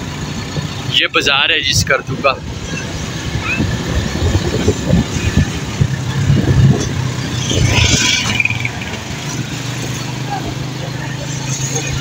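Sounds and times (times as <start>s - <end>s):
wind buffeting microphone: 1.8s - 10.6s.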